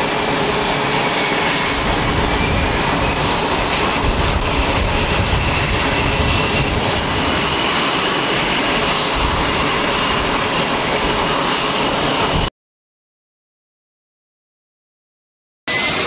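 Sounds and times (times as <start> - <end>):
jet engines rushing with whine: 0.0 - 12.5, 15.7 - 16.0.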